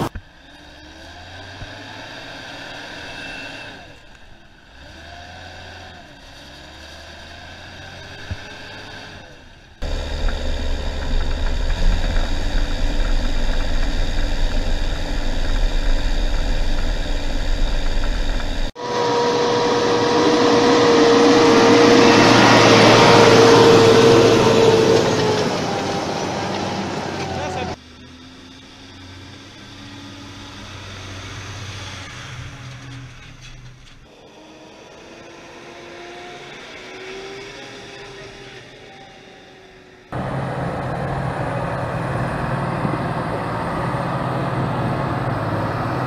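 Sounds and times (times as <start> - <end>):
loud rushing noise with whine: 9.8 - 27.8
tractor engine running: 9.8 - 27.8, 40.2 - 46.0.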